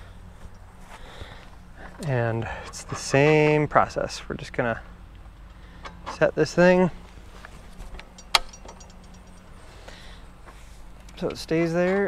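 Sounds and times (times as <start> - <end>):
faint clicks and knocks: 7.1 - 12.0.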